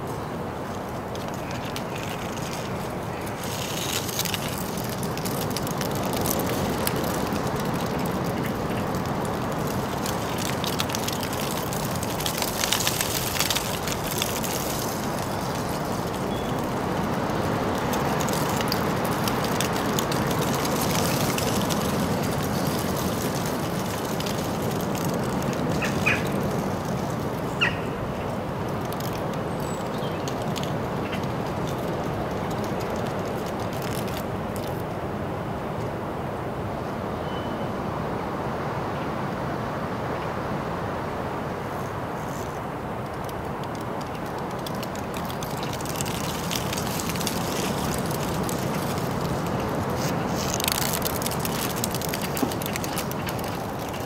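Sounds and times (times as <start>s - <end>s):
distant traffic noise: 0.0s - 54.0s
bird chirps: 37.2s - 37.7s.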